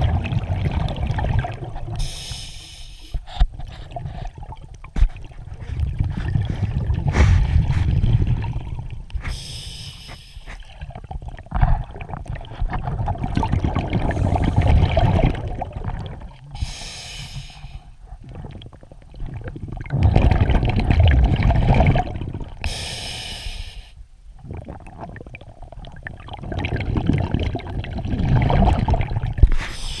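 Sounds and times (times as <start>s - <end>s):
exhaled bubbles rumbling: 0.0s - 2.2s, 3.3s - 9.4s, 10.5s - 16.8s, 17.9s - 22.7s, 24.2s - 30.0s
regulator inhalation hiss: 2.0s - 3.3s, 9.2s - 10.6s, 16.6s - 18.0s, 22.7s - 24.0s, 29.6s - 30.0s.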